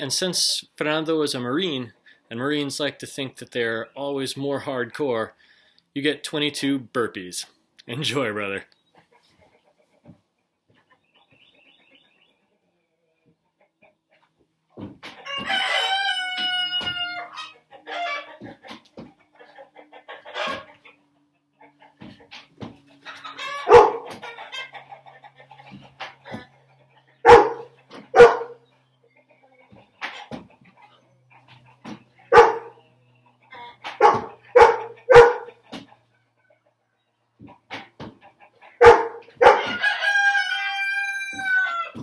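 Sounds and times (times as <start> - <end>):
rooster crowing: 15.2 - 17.4, 39.0 - 42.0
dog barking: 23.6 - 24.2, 27.2 - 28.6, 32.3 - 32.8, 34.0 - 35.6, 38.8 - 39.7.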